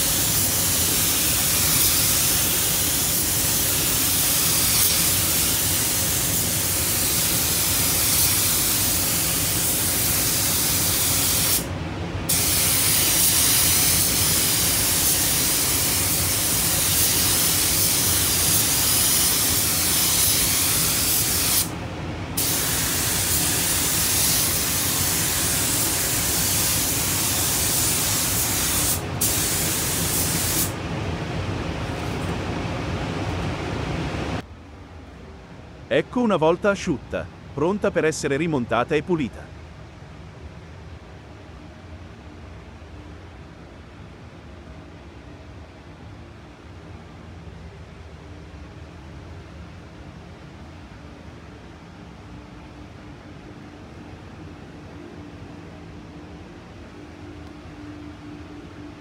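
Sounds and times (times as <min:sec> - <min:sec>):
paint spray gun hissing: 0:00.0 - 0:11.6, 0:12.3 - 0:21.7, 0:22.4 - 0:30.7.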